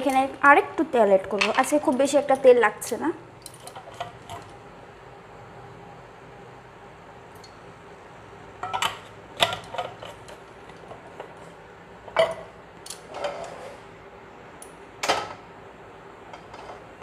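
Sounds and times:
kitchen utensils knocking: 12.1s - 12.5s.

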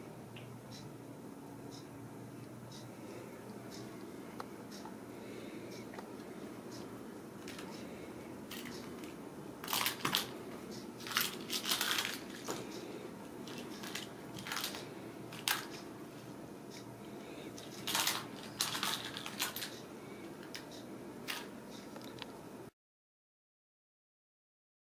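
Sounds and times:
steady low hum: 0.0s - 22.7s
plastic ball toy clicking and rattling: 9.6s - 10.3s, 11.0s - 12.5s, 13.5s - 14.8s, 15.4s - 15.8s, 17.6s - 19.7s.

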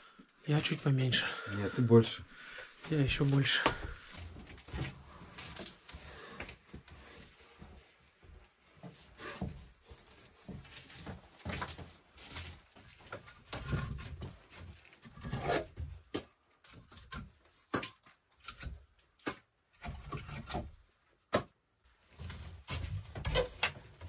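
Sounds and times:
rustling: 0.0s - 16.0s
firewood logs knocking together: 10.4s - 21.6s.

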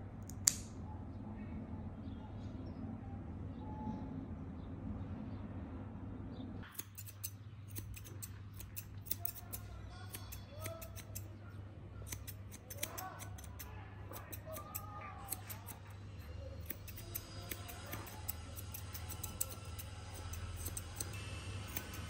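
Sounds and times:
scissors snipping fur: 0.2s - 0.7s, 6.6s - 11.3s, 12.0s - 22.0s.

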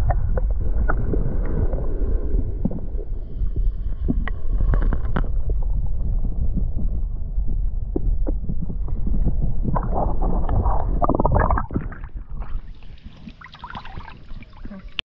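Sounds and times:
muffled underwater rumble: 0.0s - 15.0s
dense crackling: 2.6s - 12.8s.

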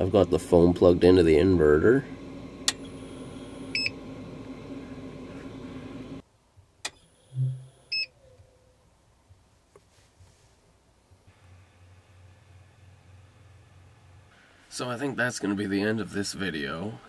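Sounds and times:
steady hum: 0.0s - 6.2s, 6.9s - 8.0s
click: 2.6s - 2.9s, 6.8s - 7.6s
brief low buzz: 7.0s - 8.0s
short high electronic beep: 7.3s - 8.1s.

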